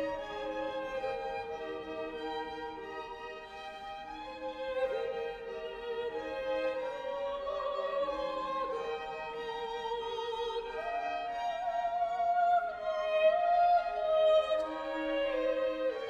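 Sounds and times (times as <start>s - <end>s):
string accompaniment: 0.0s - 16.0s
choir singing: 4.1s - 16.0s.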